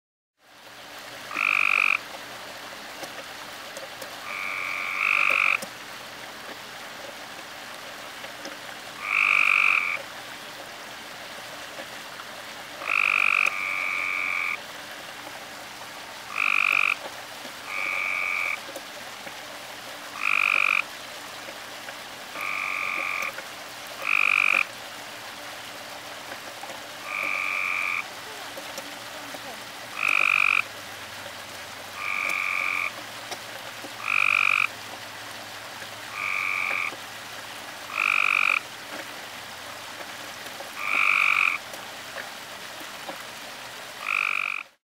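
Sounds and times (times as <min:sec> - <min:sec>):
tree frog croaking: 0:01.3 - 0:02.1, 0:04.2 - 0:05.8, 0:09.0 - 0:10.1, 0:12.8 - 0:14.6, 0:16.2 - 0:18.8, 0:20.1 - 0:20.9, 0:22.3 - 0:24.7, 0:27.0 - 0:30.7, 0:32.0 - 0:34.8, 0:36.1 - 0:37.0, 0:37.8 - 0:38.7, 0:40.7 - 0:41.7, 0:44.0 - 0:44.8.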